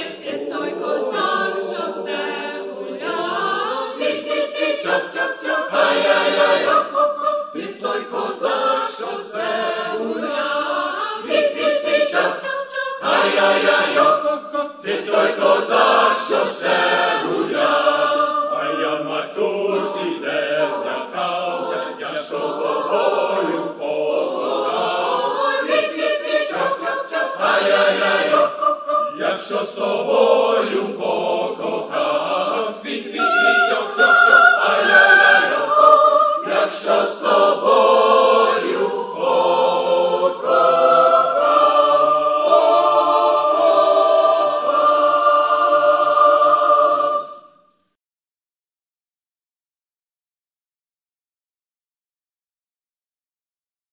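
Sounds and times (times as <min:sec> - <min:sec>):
mixed choir singing: 0:00.0 - 0:47.6.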